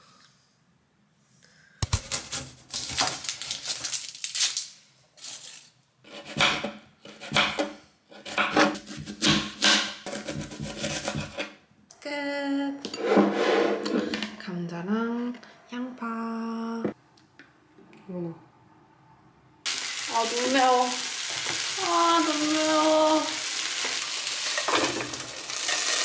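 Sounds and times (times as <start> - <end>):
knife chopping on cutting board: 6.1 - 11.4
person speaking: 20.1 - 21.0, 21.8 - 23.4.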